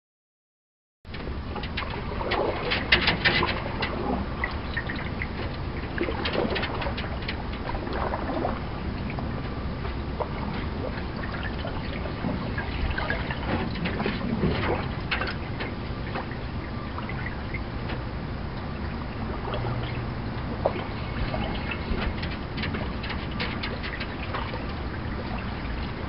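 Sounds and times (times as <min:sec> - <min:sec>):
crackles and clicks: 0:01.1 - 0:26.0
wind rumble on microphone: 0:01.1 - 0:26.0
paddle strokes splashing: 0:01.2 - 0:26.0.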